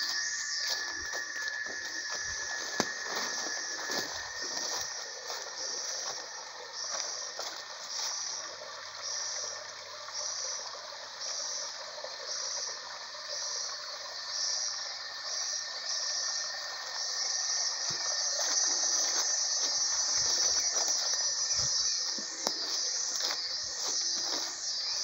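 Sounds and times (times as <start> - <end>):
footsteps on leaf litter: 0.0 - 8.2, 17.9 - 25.0
insects buzzing shrill: 0.0 - 25.0.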